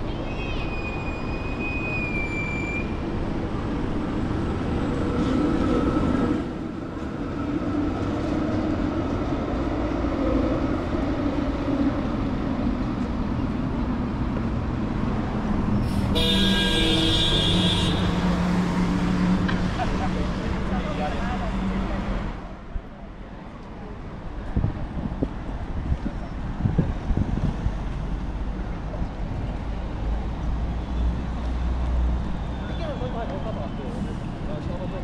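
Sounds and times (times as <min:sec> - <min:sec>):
street traffic passing: 0:00.0 - 0:35.0.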